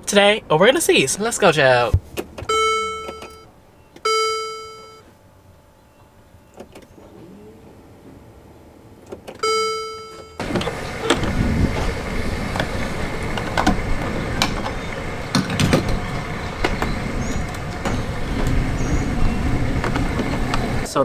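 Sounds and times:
passing traffic: 0.0s - 21.0s
bright ringing tone: 2.5s - 3.5s, 4.1s - 5.1s, 9.4s - 10.4s.

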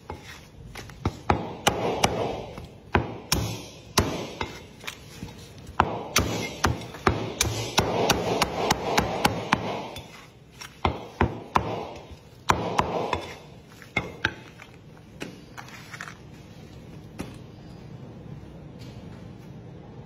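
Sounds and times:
cleaver chopping on wooden block: 10.8s - 13.3s.

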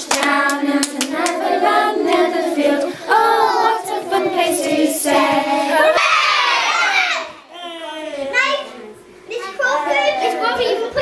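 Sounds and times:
children singing together: 0.0s - 7.4s
children shouting hooray: 6.0s - 7.5s.

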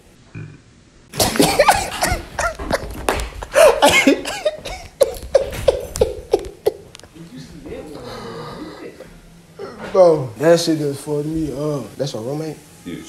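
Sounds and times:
young man laughing hard: 1.2s - 6.9s.

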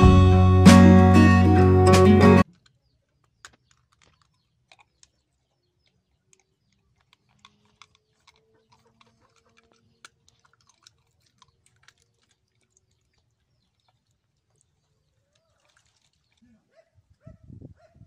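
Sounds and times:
dog chewing food: 2.6s - 15.0s.

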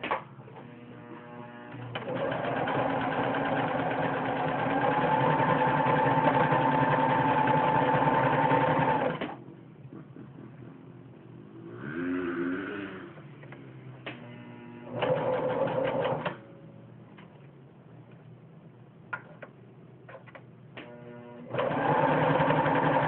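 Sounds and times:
electric sewing machine stitching: 0.6s - 9.4s, 14.8s - 16.4s, 20.9s - 23.0s.

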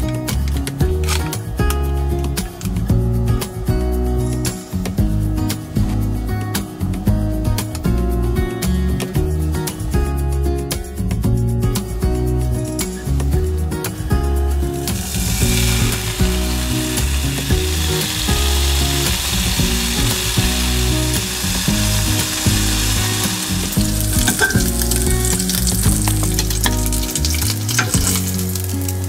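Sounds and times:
bacon sizzling in a frying pan: 14.8s - 29.0s.

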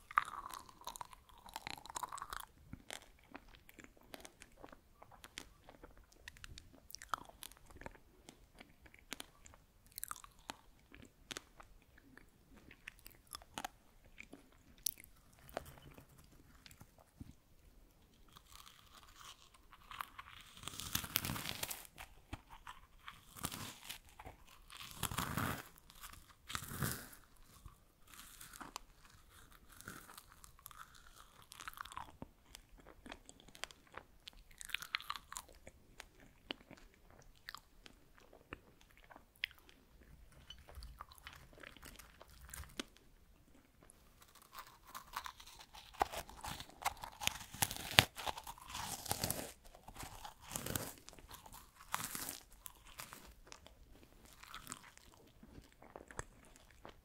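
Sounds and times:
crunching dried strawberries: 0.0s - 17.3s, 18.1s - 57.0s.

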